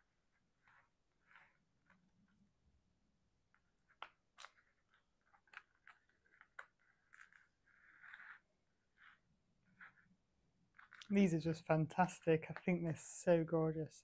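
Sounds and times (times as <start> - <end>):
soft scraping rustle: 0.3 - 2.4, 5.9 - 10.1.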